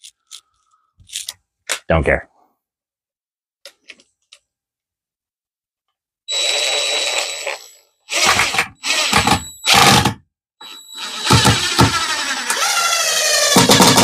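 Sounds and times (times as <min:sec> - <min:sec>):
impact driver driving screw into wood: 0:08.1 - 0:10.2, 0:11.0 - 0:14.0.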